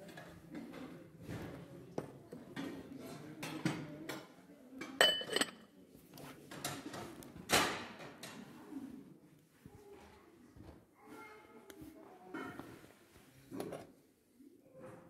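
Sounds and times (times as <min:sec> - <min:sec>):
porcelain tableware clinking: 0:04.8 - 0:05.7.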